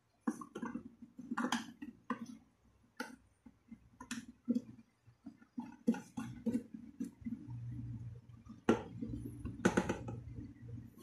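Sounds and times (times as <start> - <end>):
plastic clicks and knocks: 0.2 - 2.4, 8.5 - 10.6.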